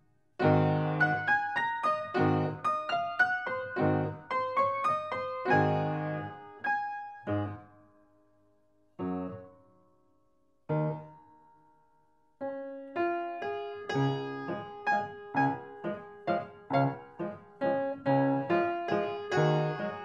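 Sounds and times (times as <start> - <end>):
piano notes and chords: 0.0 - 9.6, 10.7 - 11.7, 12.4 - 20.0.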